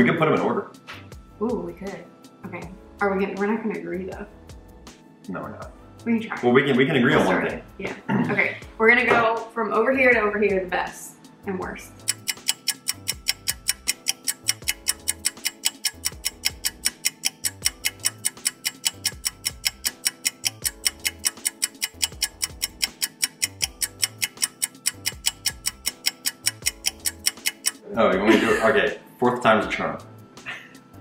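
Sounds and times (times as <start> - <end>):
clock-like ticking beat: 11.9 - 27.8.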